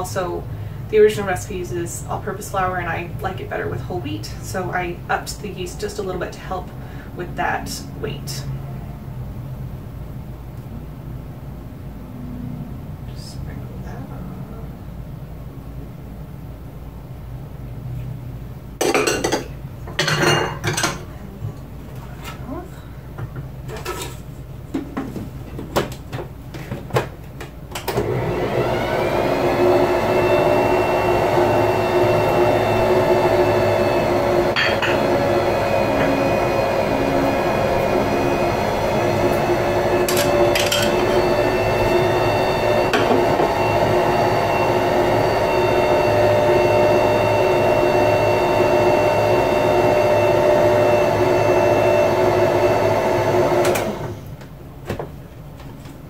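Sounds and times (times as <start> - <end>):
stand mixer running: 27.9 - 54.3.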